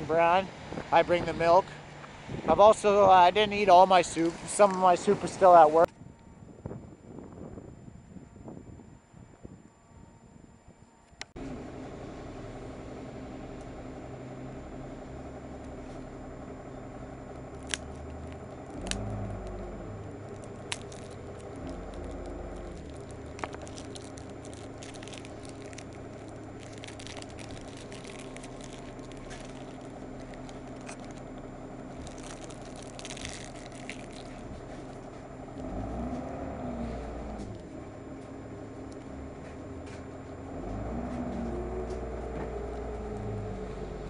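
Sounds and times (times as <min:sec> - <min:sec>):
steady low hum: 0:00.0 - 0:44.0
wrapper crinkling: 0:20.2 - 0:35.1.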